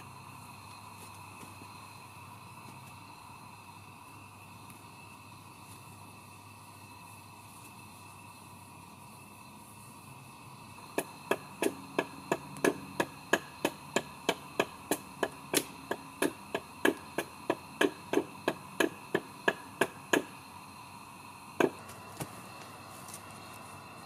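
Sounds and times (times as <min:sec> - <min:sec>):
hatchet striking wood: 0:11.0 - 0:20.3, 0:21.6 - 0:21.8.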